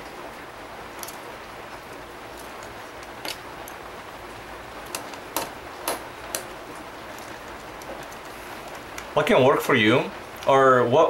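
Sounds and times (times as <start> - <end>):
faint steady hiss: 0.0 - 11.0
small parts clicking and tapping: 1.0 - 1.2, 1.9 - 3.8, 4.8 - 6.5.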